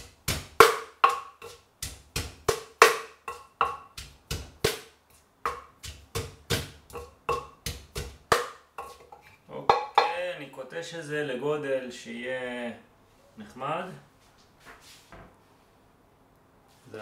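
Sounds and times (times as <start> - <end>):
pestle pounding in clay mortar: 0.0 - 10.2.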